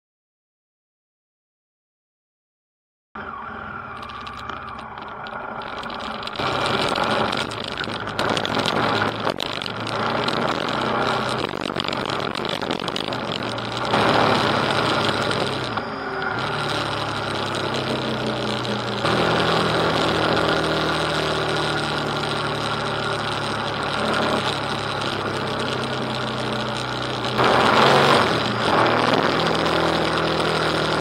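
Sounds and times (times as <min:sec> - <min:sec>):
motorcycle engine running: 0:03.2 - 0:31.0.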